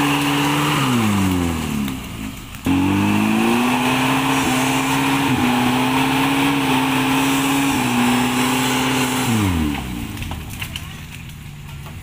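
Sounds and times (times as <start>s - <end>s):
car engine at high revs: 0.0s - 10.8s.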